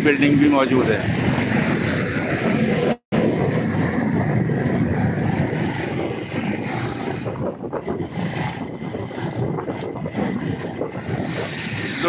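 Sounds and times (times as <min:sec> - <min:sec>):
motorcycle engine running: 0:00.0 - 0:12.0
rushing wind noise: 0:00.0 - 0:12.0.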